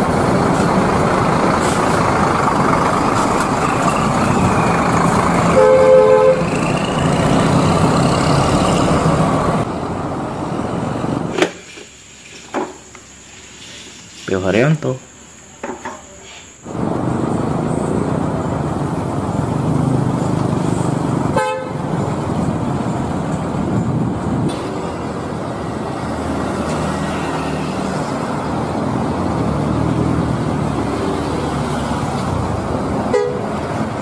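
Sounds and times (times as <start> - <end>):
bus engines and traffic noise: 0.0 - 34.0
short horn toot: 5.5 - 6.5.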